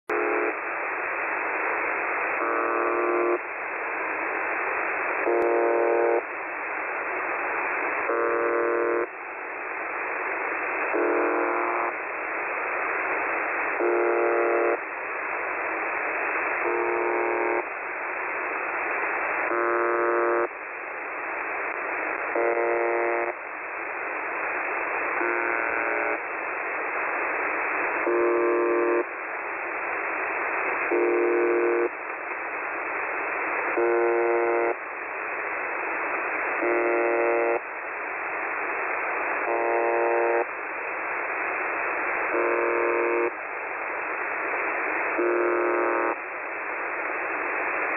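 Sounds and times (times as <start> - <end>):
harsh radio buzz: 0.1 - 9.2, 10.3 - 20.8, 21.7 - 43.4, 44.0 - 47.9
radio static hiss: 0.1 - 47.9.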